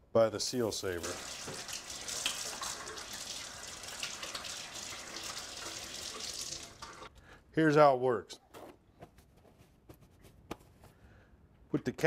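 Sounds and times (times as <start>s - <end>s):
faucet running into sink: 0.8s - 7.1s
hands rinsed under water: 0.8s - 7.1s.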